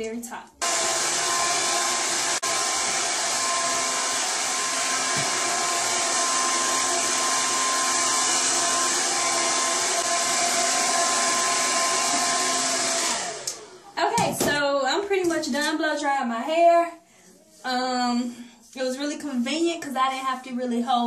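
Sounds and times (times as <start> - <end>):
hair dryer running: 0.6 - 14.2.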